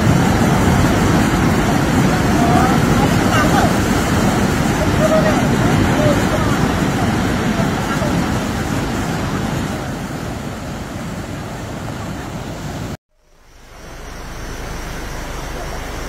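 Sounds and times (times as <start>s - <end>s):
rushing outdoor noise: 0.0s - 16.0s.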